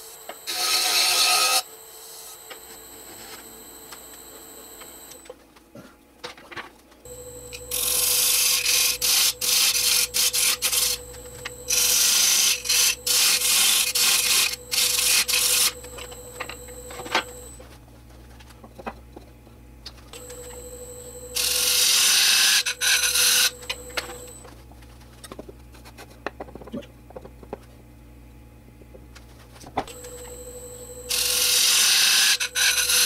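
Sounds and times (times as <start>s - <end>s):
wood lathe humming: 0.5s - 5.2s, 7.1s - 17.6s, 20.2s - 24.4s, 30.0s - 33.0s.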